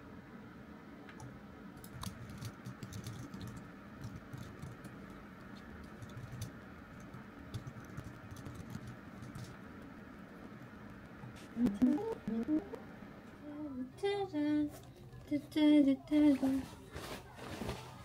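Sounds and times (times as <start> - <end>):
computer keyboard typing: 1.8 - 9.6.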